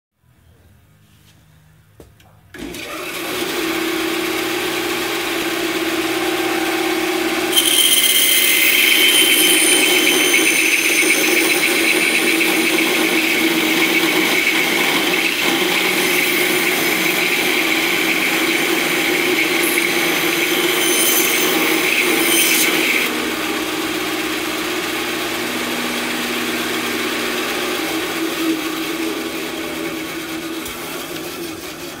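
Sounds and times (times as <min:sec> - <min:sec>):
bandsaw motor humming: 0:02.6 - 0:32.0.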